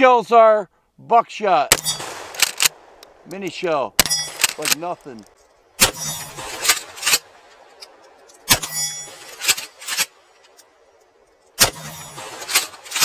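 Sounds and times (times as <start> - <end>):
shotgun shot: 1.7 - 2.9, 5.8 - 7.3, 11.6 - 13.0.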